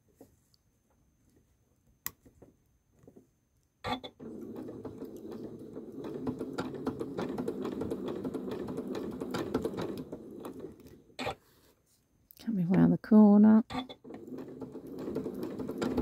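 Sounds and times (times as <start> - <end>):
sewing machine stitching: 3.8 - 11.4, 13.7 - 16.0
sewing machine knock: 4.2 - 10.8, 13.7 - 16.0.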